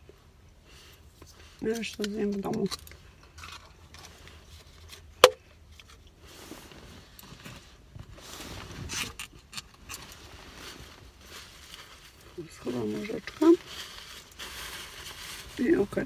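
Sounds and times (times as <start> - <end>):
soft rustling: 2.6 - 9.0, 9.8 - 16.0.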